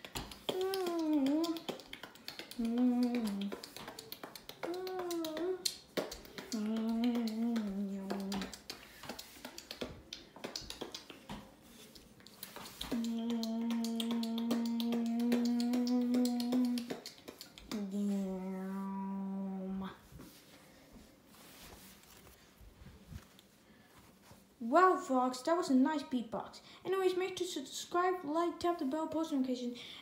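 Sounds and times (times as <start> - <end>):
beatboxing hummed notes: 0.1 - 9.9, 12.2 - 18.5.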